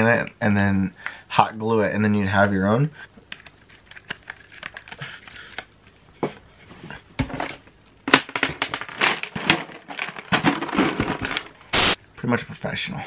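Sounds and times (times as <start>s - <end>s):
plastic toys clicking and knocking: 7.3s - 11.7s.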